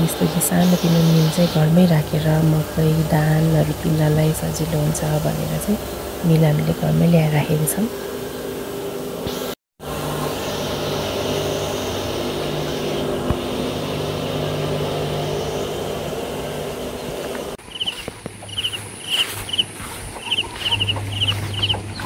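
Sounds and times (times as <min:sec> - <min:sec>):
birds chirping: 0:00.0 - 0:08.6, 0:14.3 - 0:22.0
grain mill humming: 0:00.0 - 0:22.0.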